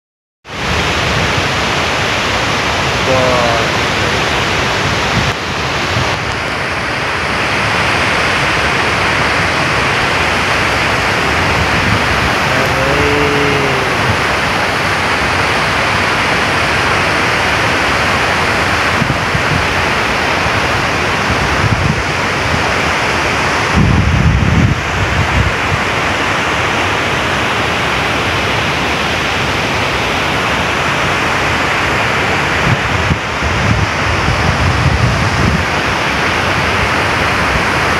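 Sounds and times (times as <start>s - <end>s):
river running over rocks: 0.5s - 37.9s
water rushing from spillway: 0.5s - 37.9s
wind buffeting microphone: 3.7s - 12.6s, 18.4s - 26.0s, 32.5s - 37.8s.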